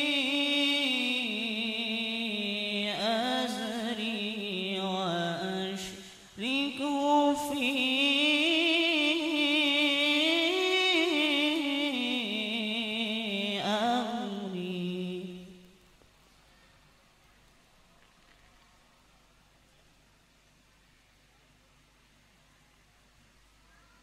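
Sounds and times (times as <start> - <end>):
man chanting into microphone: 0.0 - 15.6.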